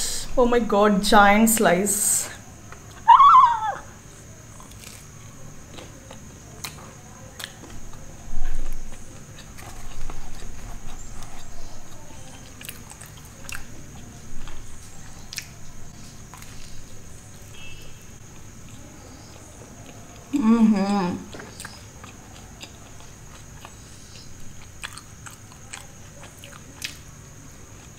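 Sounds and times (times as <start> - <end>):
person chewing pizza: 4.2 - 27.9
mouth clicks and crunches: 4.5 - 16.9, 20.9 - 27.9.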